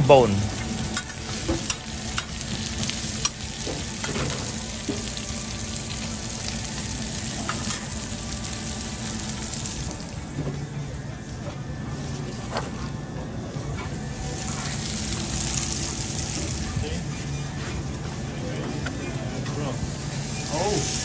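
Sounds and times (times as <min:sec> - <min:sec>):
food sizzling on a griddle: 0:00.0 - 0:10.3, 0:14.0 - 0:17.0, 0:19.8 - 0:21.0.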